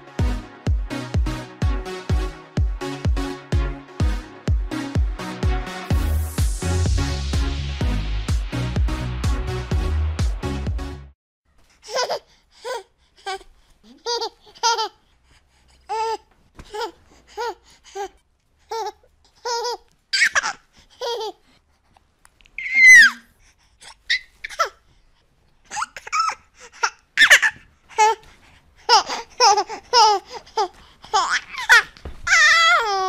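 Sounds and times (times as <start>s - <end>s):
baby giggling: 11.8s - 12.8s, 13.9s - 15.0s, 18.7s - 21.4s, 25.7s - 28.2s, 28.9s - 33.0s
baby squealing: 19.5s - 21.2s, 22.6s - 23.3s, 23.9s - 24.8s, 27.2s - 28.2s, 31.2s - 33.0s.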